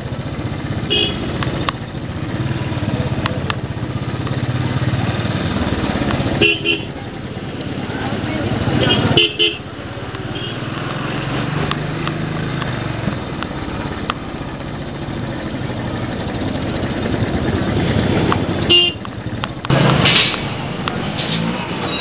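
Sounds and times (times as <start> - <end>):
motorcycle engine running: 0.0 - 22.0
street traffic: 0.0 - 22.0
vehicle horn toot: 0.9 - 1.3, 6.4 - 6.9, 8.8 - 9.6, 18.7 - 19.0.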